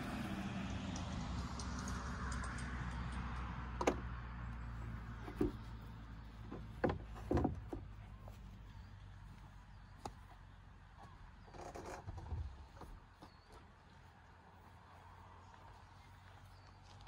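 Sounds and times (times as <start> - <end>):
wooden plank knocking: 5.2 - 5.6, 6.5 - 7.9.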